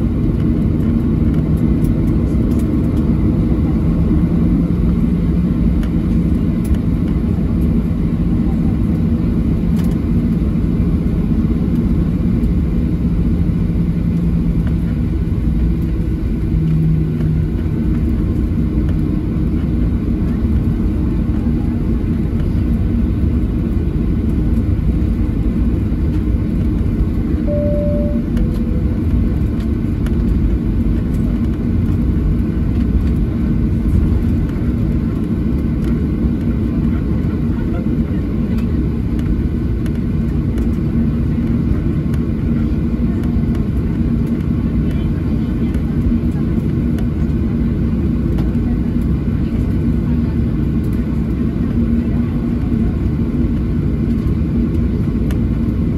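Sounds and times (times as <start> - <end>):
airplane cabin engine rumble: 0.0 - 55.9
two-note falling tone: 27.5 - 29.0.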